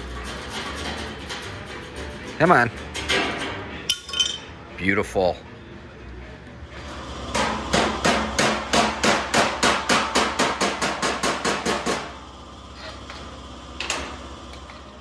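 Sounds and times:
hammer striking steel: 7.3 - 12.2.

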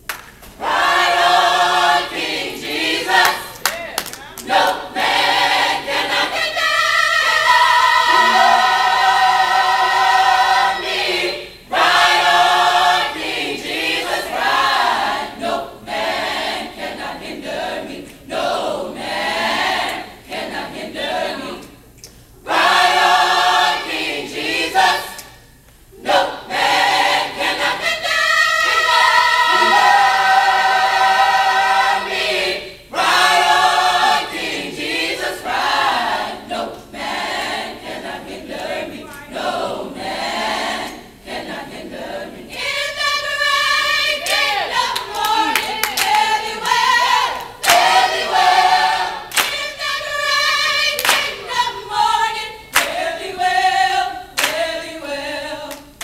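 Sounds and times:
people clapping in rhythm: 0.0 - 6.7, 7.3 - 9.9, 43.8 - 51.6, 52.7 - 53.3, 54.4 - 54.9, 55.6 - 56.0
choir singing in harmony: 0.6 - 3.7, 4.4 - 56.0.

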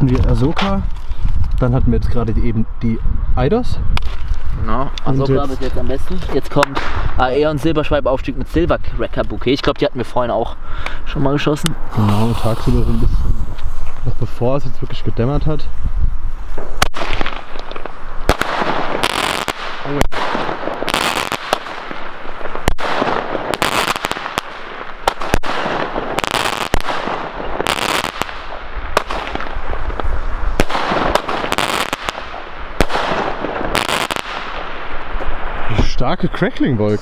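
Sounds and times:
crackling firework stars: 0.0 - 1.8, 3.9 - 7.4, 11.6 - 15.0, 15.6 - 36.0
firework launch bangs: 16.6 - 35.4.

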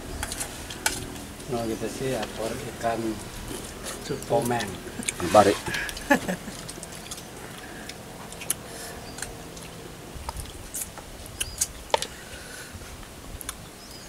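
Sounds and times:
people eating: 0.0 - 13.6
lip smacks: 5.0 - 11.7.

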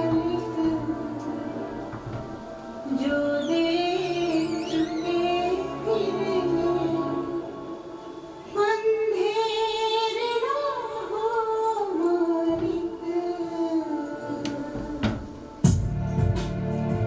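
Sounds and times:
soft musical backing: 0.0 - 17.0
music beat: 15.0 - 17.0.

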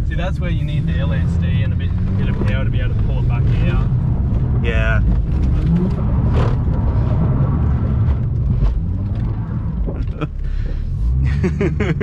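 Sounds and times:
car engine rumbling: 0.0 - 12.0
car clicks and creaks: 4.3 - 7.0, 7.8 - 10.8.

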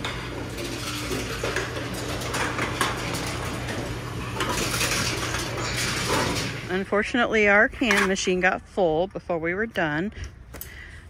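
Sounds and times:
metal cans clattering and clicking: 0.0 - 6.6
machine low hum: 0.0 - 9.3.

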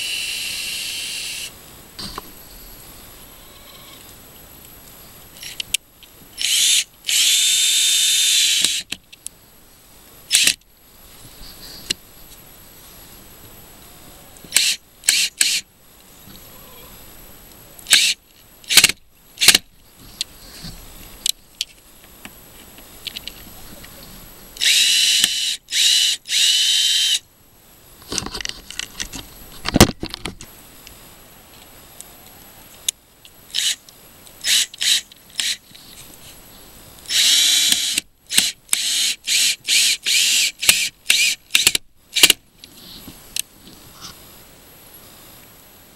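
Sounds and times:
power drill motor whine: 6.4 - 8.8, 24.6 - 27.2, 37.1 - 41.7.

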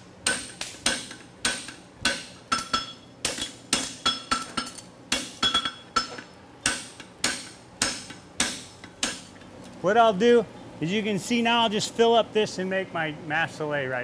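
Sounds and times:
hammer striking steel on anvil: 0.2 - 9.3.

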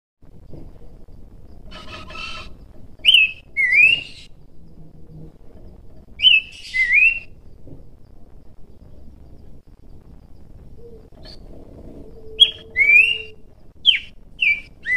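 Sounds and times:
bird whistled phrase: 12.4 - 14.9.

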